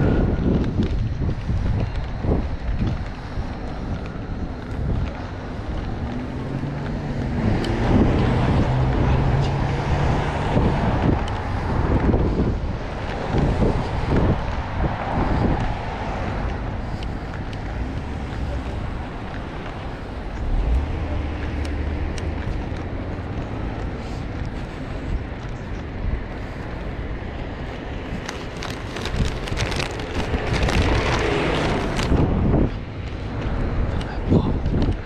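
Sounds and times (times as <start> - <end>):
road traffic: 0.0 - 35.0
wind buffeting microphone: 0.0 - 35.0
car passing close by: 5.9 - 12.3, 29.8 - 34.2.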